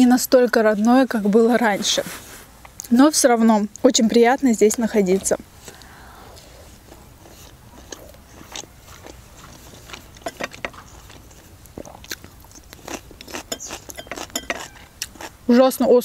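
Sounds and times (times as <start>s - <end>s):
chewing food: 4.8s - 15.5s.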